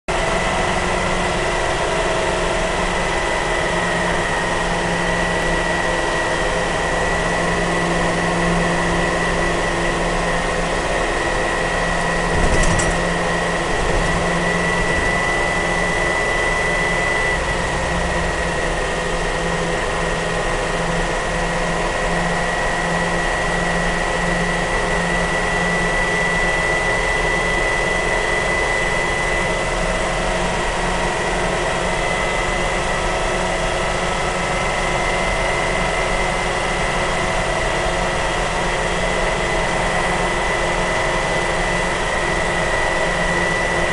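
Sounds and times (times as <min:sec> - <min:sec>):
truck engine running: 0:00.2 - 0:20.4
high whine: 0:11.7 - 0:18.5
brief knock: 0:12.3 - 0:13.1.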